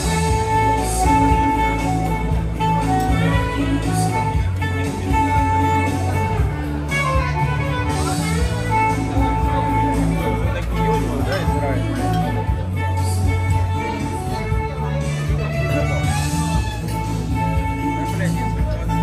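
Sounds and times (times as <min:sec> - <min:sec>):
backing track with bass line: 0:00.0 - 0:19.0
saxophone melody: 0:00.0 - 0:19.0.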